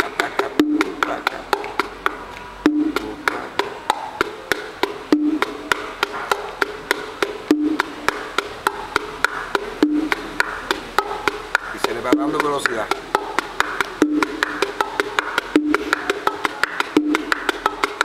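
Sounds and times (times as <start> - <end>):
bongos played by hand: 0.0 - 18.0.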